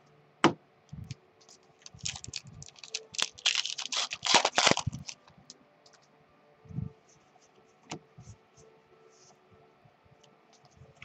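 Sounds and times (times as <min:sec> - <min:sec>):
wrapper crinkling being torn: 0:01.8 - 0:06.0.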